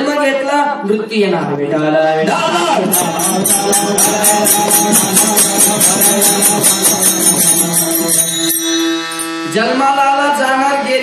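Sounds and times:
hand cymbals clashing: 2.9 - 9.6
held musical tones: 2.9 - 11.0.

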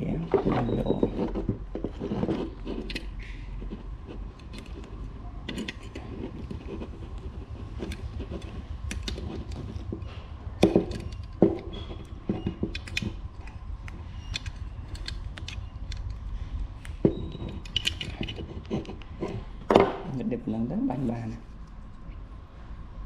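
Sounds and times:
metal clamp clicking and clinking: 4.4 - 6.2, 10.6 - 16.2, 16.8 - 18.4.

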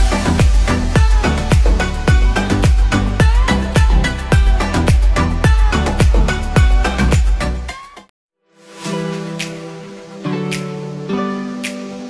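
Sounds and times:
deep kick drum beat: 0.0 - 7.5
dance music: 0.0 - 8.1.

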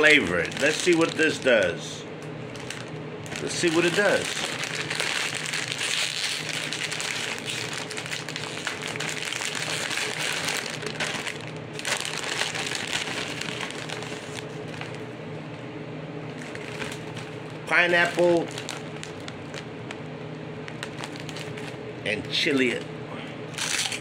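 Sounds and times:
plastic snack bag rustling: 0.0 - 1.8, 2.5 - 15.0, 16.3 - 20.0, 20.6 - 21.8.

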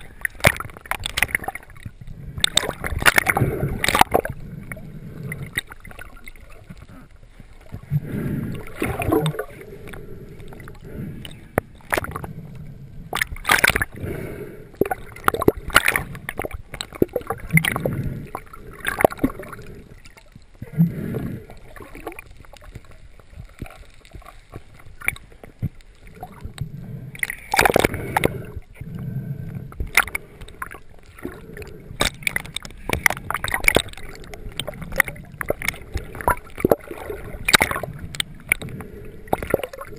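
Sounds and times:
knocks and splashes: 0.0 - 4.3, 8.7 - 9.5, 13.2 - 13.9, 14.8 - 18.0, 32.0 - 37.9
water gurgling and sloshing: 0.0 - 39.9.

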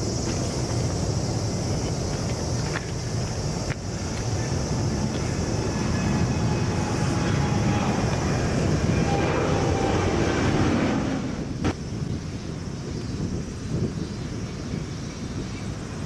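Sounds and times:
faint engine whine: 0.0 - 12.7
jet engine rumble: 0.0 - 16.0.

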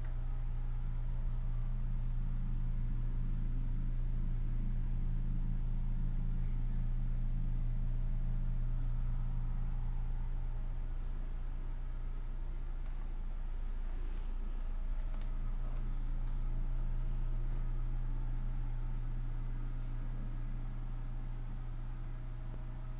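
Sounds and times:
steady low hum: 0.0 - 22.9.

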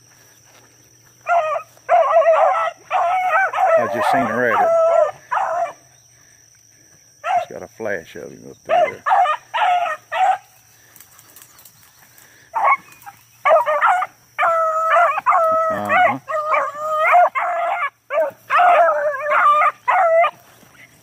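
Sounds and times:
hounds baying: 1.1 - 6.2, 7.2 - 7.6, 8.6 - 21.0.

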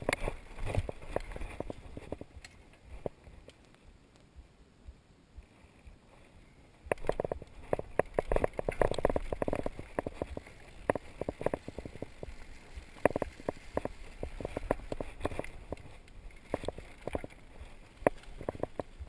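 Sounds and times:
mountain bike rattling over rocks: 0.0 - 3.3, 6.9 - 19.0.

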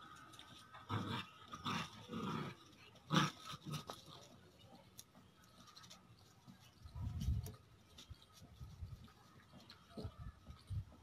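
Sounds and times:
puppies growling: 0.0 - 4.4.

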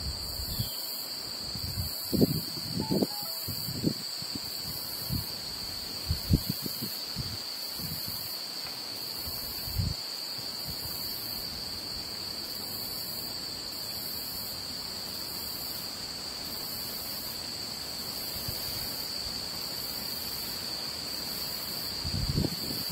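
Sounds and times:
high-pitched insect chorus: 0.0 - 22.9
pulsing high insect layer: 0.0 - 22.9.

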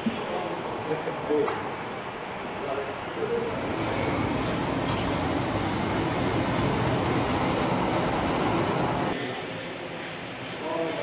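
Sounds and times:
model train wheels on rails: 3.4 - 9.2.

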